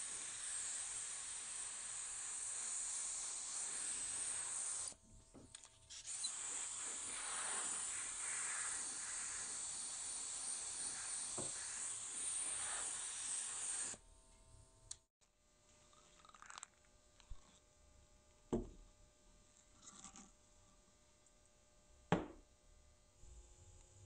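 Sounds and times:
aerosol spray can hissing: 0:00.0 - 0:05.0, 0:05.9 - 0:14.0.

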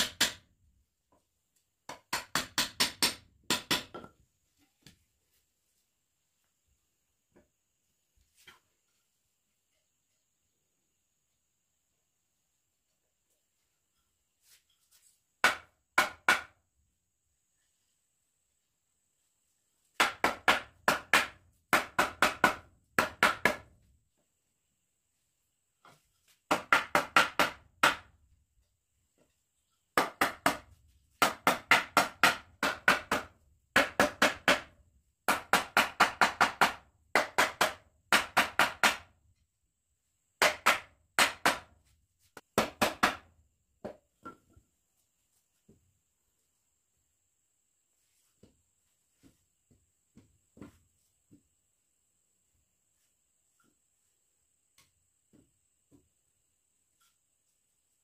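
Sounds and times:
hammer driving nails into wood: 0:00.0 - 0:00.5, 0:01.9 - 0:04.1, 0:40.4 - 0:41.7.

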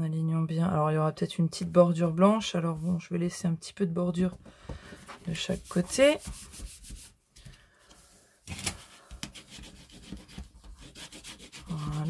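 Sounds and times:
paper rubbing on craft mat: 0:05.2 - 0:07.2, 0:08.7 - 0:12.0.

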